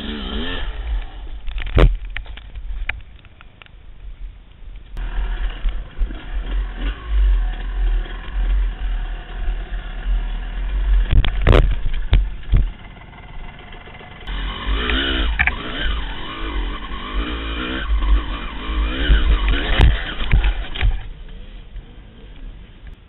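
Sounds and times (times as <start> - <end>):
engine revving hard: 0.0 - 1.2, 5.0 - 11.2, 14.2 - 21.0
dirt bike engine running: 4.8 - 21.9.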